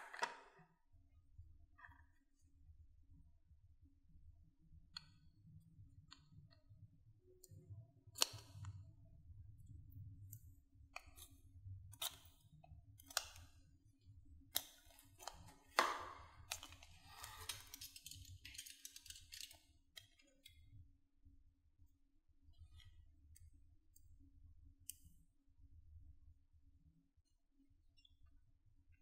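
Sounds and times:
knife carving soap: 7.4 - 9.0, 9.6 - 13.8, 14.4 - 20.7.

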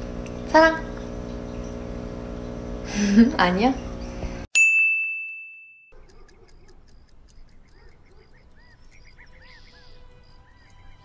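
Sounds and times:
bell-like ding: 4.6 - 6.0
light ticks and chirps: 6.0 - 11.0.

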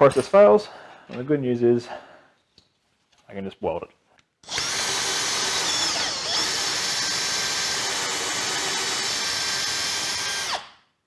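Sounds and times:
electric drill whining: 4.4 - 10.8.

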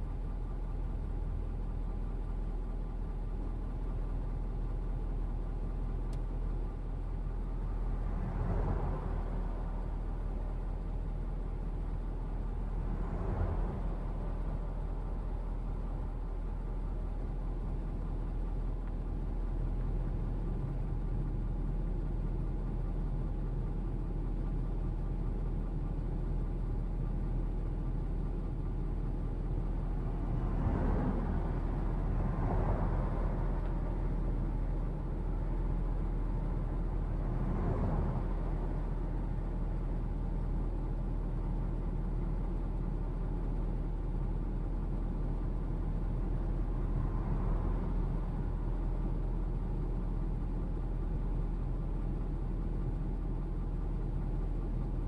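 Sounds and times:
low rumble and hum in vehicle cabin: 0.0 - 55.0.

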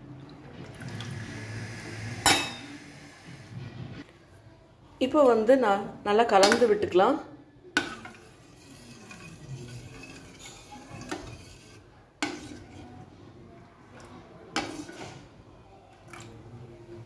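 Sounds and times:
ladle scraping pot: 7.8 - 13.1, 14.5 - 15.4.

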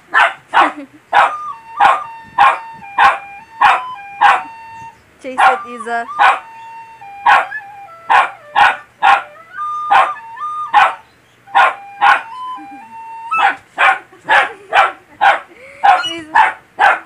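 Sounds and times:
small dog barking: 0.1 - 4.5, 5.4 - 5.6, 6.2 - 6.4, 7.3 - 9.3, 9.9 - 12.3, 13.4 - 17.0
recorder playing notes: 1.1 - 13.6.

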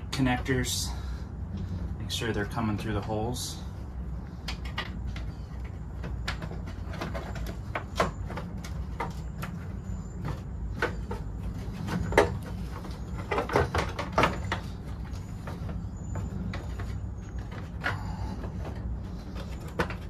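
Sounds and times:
steady low hum: 0.0 - 20.0
clicks and knocks on plastic: 4.4 - 20.0.

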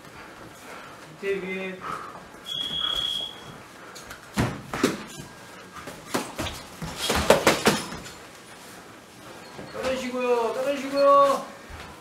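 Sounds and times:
short high squeak: 2.4 - 3.5
footsteps scuffing gym floor: 2.6 - 8.9, 9.5 - 12.0.

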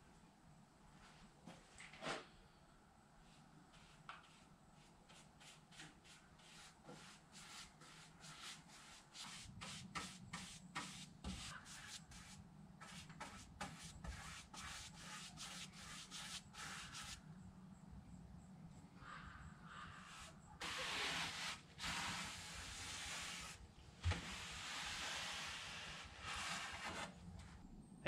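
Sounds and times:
paintbrush swishing on wood: 3.2 - 17.2.

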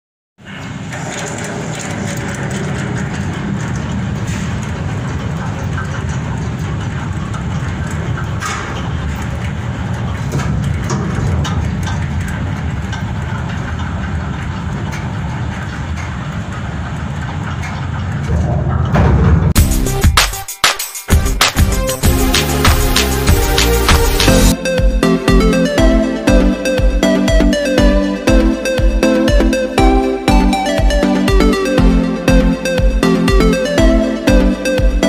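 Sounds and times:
heavy machinery rumble: 0.4 - 20.2, 21.1 - 35.0
sharp cracks and clicks: 20.2 - 24.8.

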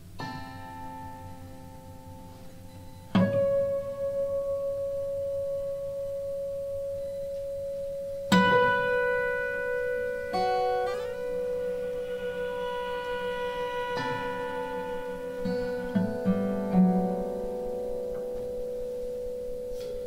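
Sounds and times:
slow chamber music: 0.0 - 20.0
sharply struck ringing note: 3.2 - 20.0
bowed cello: 9.8 - 17.8.

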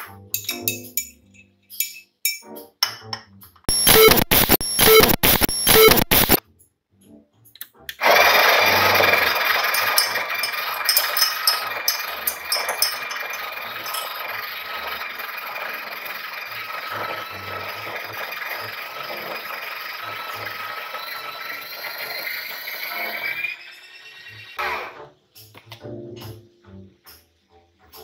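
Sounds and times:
coffee grinder running: 8.0 - 23.6
light clinks: 9.8 - 14.3.

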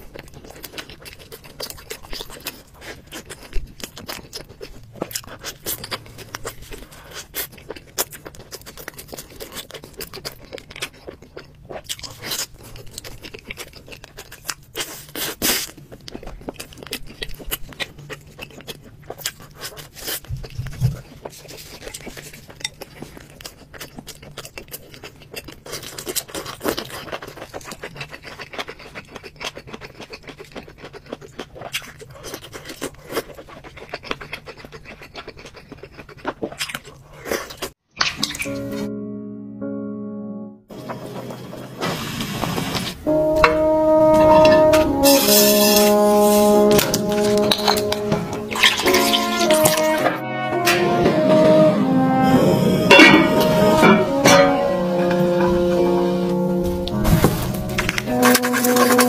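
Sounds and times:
chewing pastry: 0.0 - 38.5
chopsticks scraping ceramic bowl: 43.1 - 51.4, 52.8 - 59.0.

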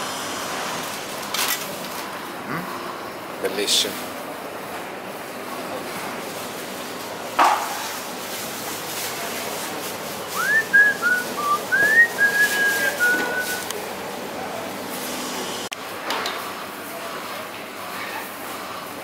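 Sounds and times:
steady background noise: 0.0 - 19.0
person whistling a tune: 10.4 - 13.7.

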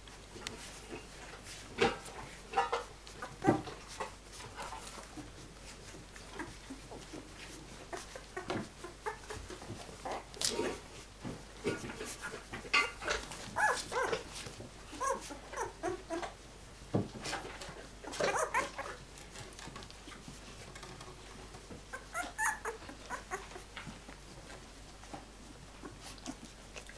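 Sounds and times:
puppies whimpering and yipping: 3.0 - 4.1, 4.8 - 10.3, 13.0 - 16.4, 18.0 - 19.3, 21.9 - 24.2.

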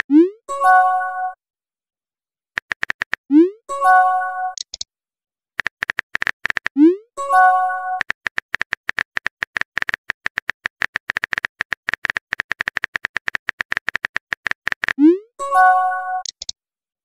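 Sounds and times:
keyboard typing clicks: 2.6 - 3.4, 4.5 - 4.8, 5.6 - 6.8, 7.9 - 15.1, 16.2 - 16.6.

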